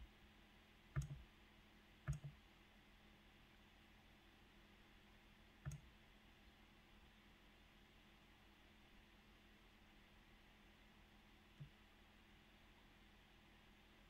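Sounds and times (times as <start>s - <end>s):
computer mouse clicks: 0.9s - 1.2s, 2.1s - 2.4s, 5.6s - 5.9s, 11.6s - 11.8s.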